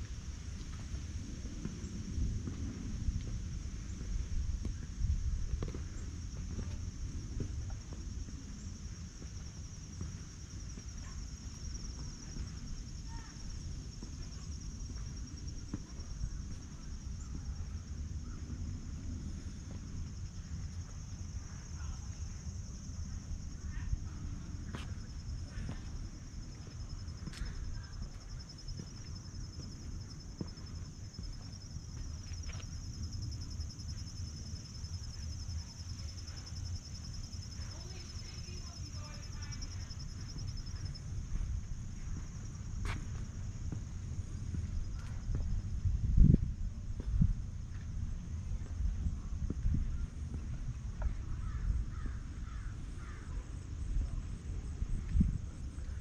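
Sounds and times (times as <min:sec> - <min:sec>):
low rumble: 0:00.0 - 0:37.7, 0:39.6 - 0:56.0
insects droning: 0:00.0 - 0:56.0.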